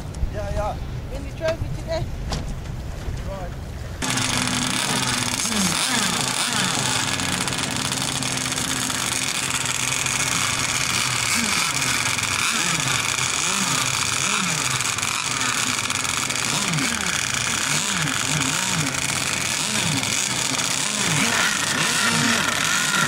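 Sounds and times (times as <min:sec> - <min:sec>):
model boat engines droning: 0:03.9 - 0:23.0.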